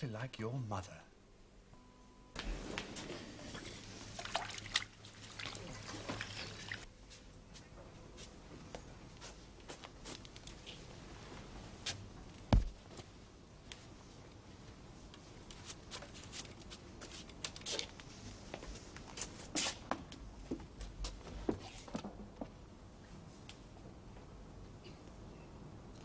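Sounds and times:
dull thump: 12.5s - 12.8s.

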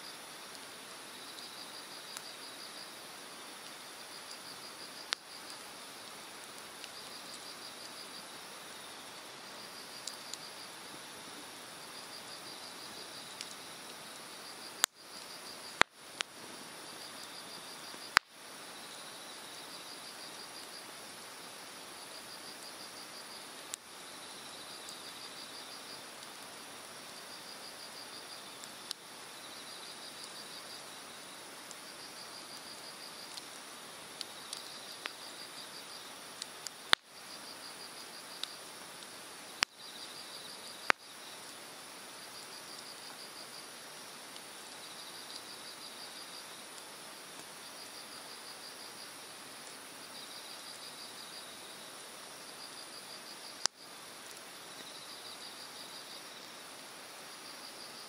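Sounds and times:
insects trilling: 0.0s - 58.0s
fire crackling: 0.1s - 58.0s
fire popping: 1.9s - 18.4s, 28.4s - 41.2s, 53.4s - 54.9s.

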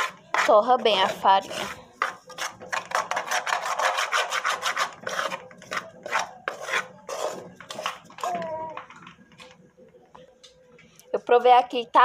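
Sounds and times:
metal spoon scraping flour in a pot: 0.0s - 8.3s.

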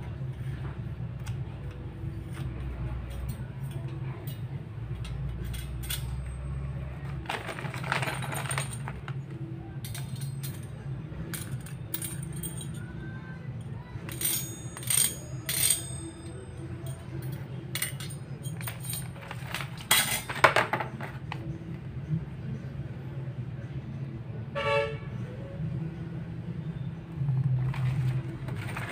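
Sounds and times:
metal sprockets clinking: 3.1s - 6.6s, 7.2s - 12.9s, 14.1s - 21.4s, 27.6s - 28.9s.

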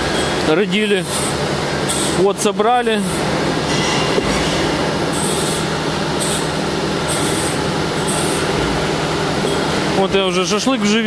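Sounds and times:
machine rumbling with low hum: 0.0s - 11.0s.

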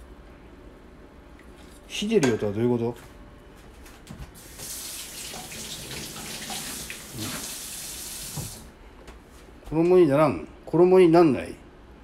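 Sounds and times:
water running from kitchen tap: 4.4s - 8.7s.

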